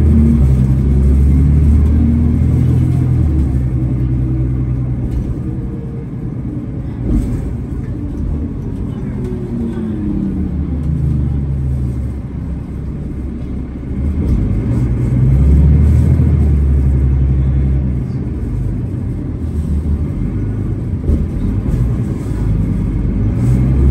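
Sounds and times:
bus diesel engine rumble: 0.0 - 23.9.

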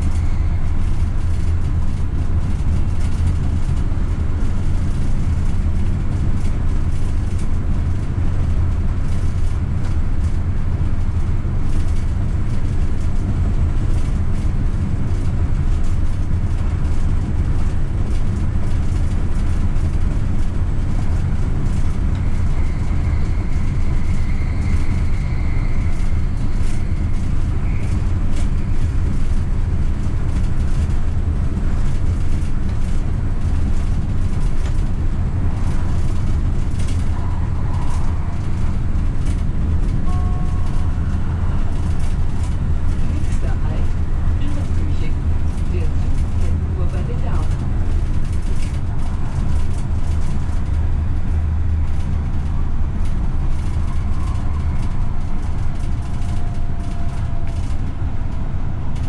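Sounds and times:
tram wheels and motors rumbling: 0.0 - 59.0
faint high tone: 40.0 - 41.1.

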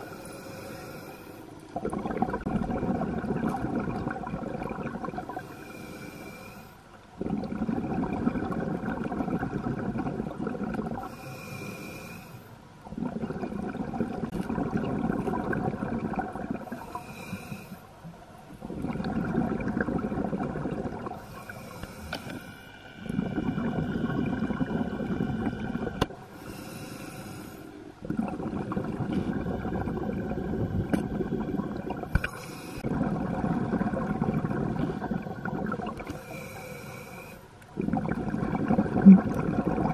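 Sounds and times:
regulator inhale hiss: 0.0 - 1.5, 5.4 - 6.9, 11.0 - 12.6, 16.6 - 17.9, 21.2 - 23.7, 26.3 - 27.8, 32.1 - 32.9, 36.1 - 37.6
exhaled bubbles: 1.6 - 6.4, 7.0 - 11.9, 12.8 - 39.9.

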